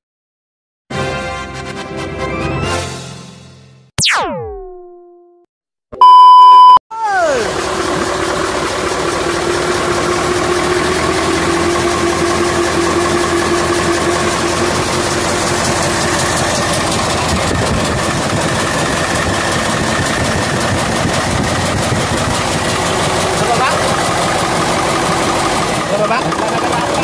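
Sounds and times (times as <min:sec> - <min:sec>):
diesel engine running: 0:07.0 - 0:27.0.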